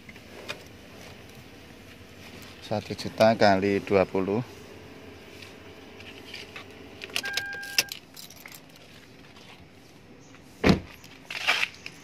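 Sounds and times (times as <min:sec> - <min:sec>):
car door shutting: 0:06.0 - 0:08.0, 0:10.6 - 0:11.0
short steady beep: 0:07.2 - 0:07.9
keys jangling: 0:07.2 - 0:08.9.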